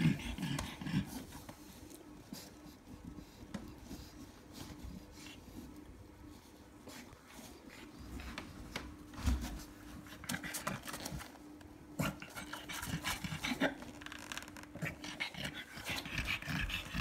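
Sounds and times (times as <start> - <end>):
dog panting: 14.9 - 17.0.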